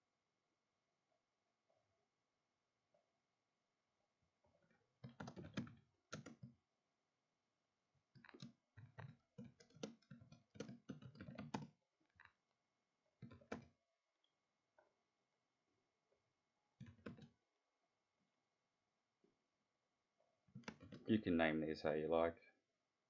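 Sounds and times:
faint keyboard typing: 4.6s - 6.6s, 8.1s - 12.4s, 13.2s - 13.8s, 16.8s - 17.4s, 20.5s - 21.2s.

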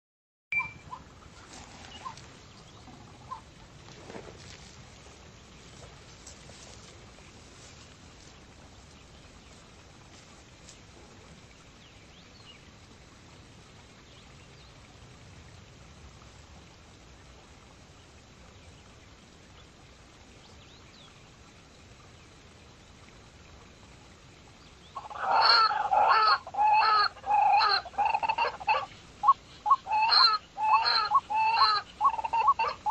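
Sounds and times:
pheasant squawking: 0.6s - 2.3s, 2.9s - 3.5s, 25.0s - 32.9s.

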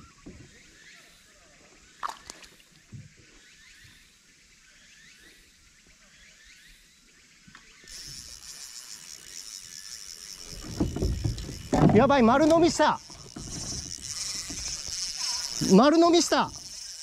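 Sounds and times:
high hissing buzz: 7.9s - 17.0s.

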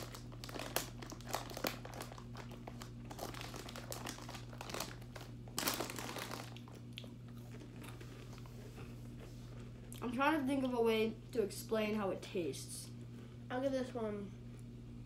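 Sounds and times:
plastic snack bag crinkling: 0.0s - 8.5s.

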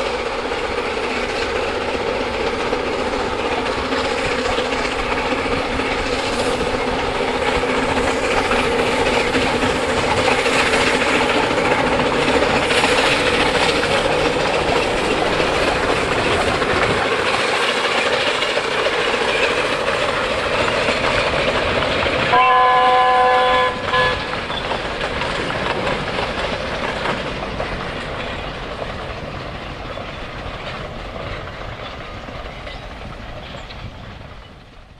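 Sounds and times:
train wheels rumbling on rail: 0.0s - 34.9s
steam whistle blast: 22.3s - 24.3s.

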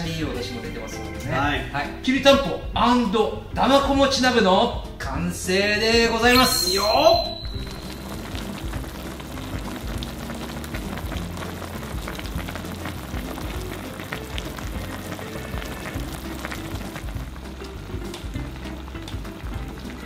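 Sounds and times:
soft background music: 0.0s - 20.0s
broth bubbling in a pot: 7.4s - 20.0s.

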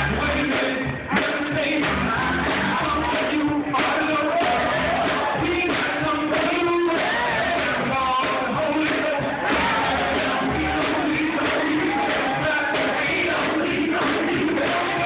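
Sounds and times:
male chorus singing gospel: 0.0s - 15.0s.

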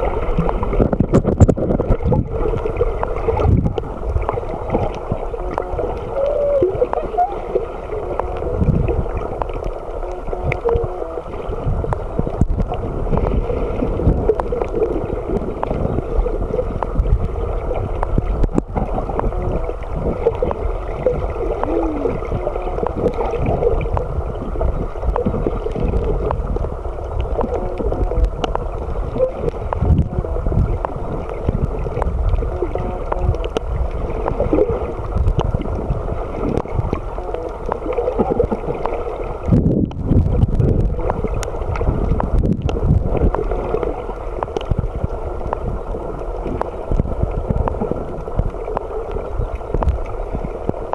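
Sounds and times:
muffled underwater gurgling: 0.0s - 50.9s.

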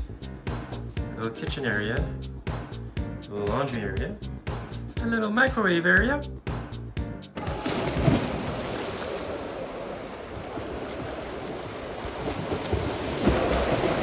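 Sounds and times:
swimmers splashing: 7.4s - 14.0s.

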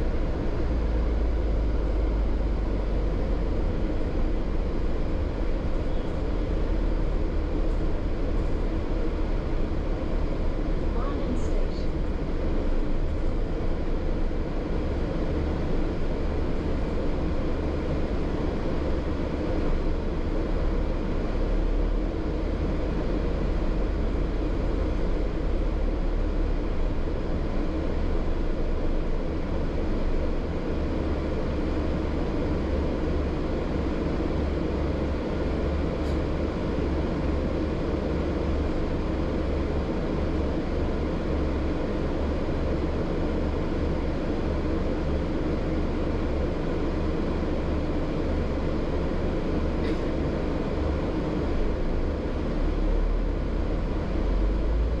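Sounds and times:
bus engine drone: 0.0s - 55.0s
road rumble: 0.0s - 55.0s.

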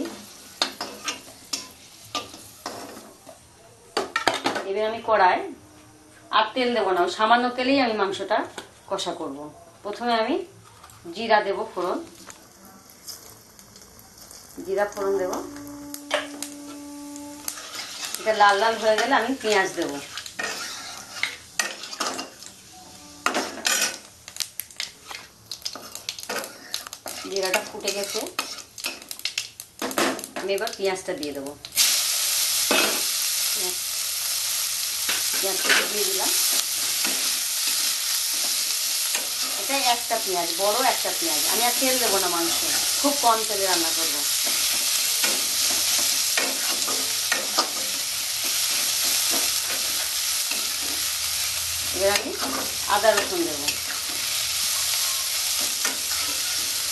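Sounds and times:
seeds sizzling in hot oil: 0.0s - 3.4s, 11.0s - 56.9s
spatula scraping a pan: 15.1s - 22.4s, 25.0s - 29.0s, 52.4s - 56.9s.

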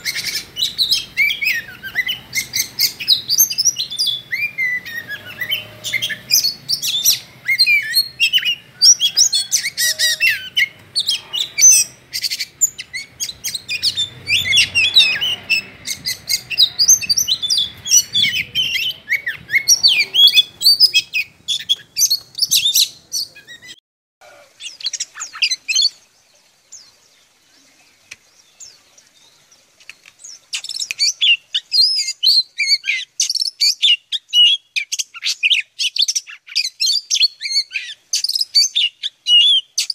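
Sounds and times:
birds singing whistles and trills: 0.0s - 39.9s.

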